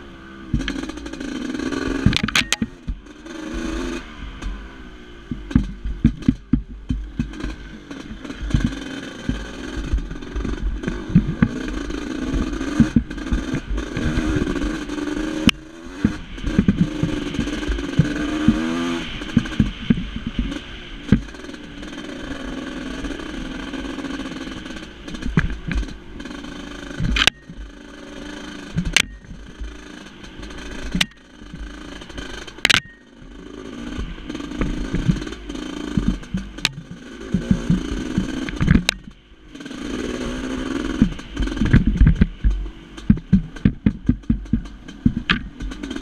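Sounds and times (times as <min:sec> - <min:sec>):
two-stroke motorcycle engine: 0:00.0 - 0:46.0
bike knocks and clatter: 0:00.5 - 0:01.1, 0:01.9 - 0:03.1, 0:05.3 - 0:21.9, 0:26.9 - 0:27.8, 0:28.7 - 0:33.1, 0:34.0 - 0:39.2, 0:40.7 - 0:46.0.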